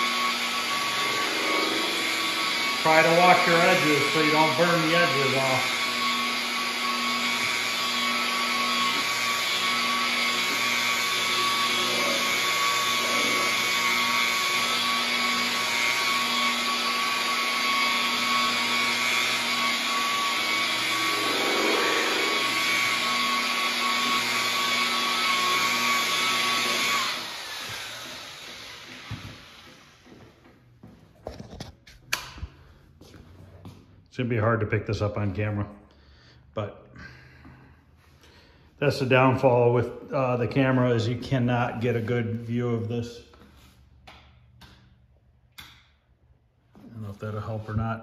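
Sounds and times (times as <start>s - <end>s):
rotary polisher running: 0.0s - 31.0s.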